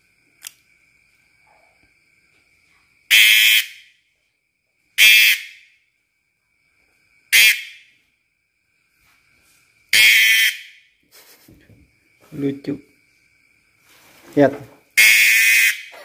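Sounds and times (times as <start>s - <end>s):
cicada buzzing squawks: 3.1s - 4.0s, 5.0s - 5.7s, 7.3s - 8.0s, 9.9s - 11.4s, 14.9s - 16.0s.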